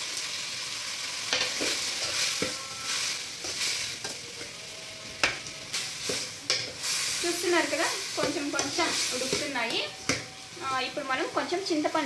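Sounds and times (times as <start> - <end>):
tomatoes sizzling in oil: 0.0 - 12.0
metal spoon scraping a pan: 1.3 - 10.4.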